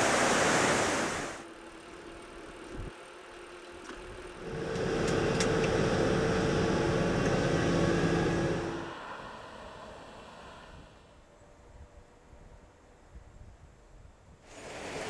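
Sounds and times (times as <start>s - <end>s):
diesel excavator engine running: 1.5s - 11.0s.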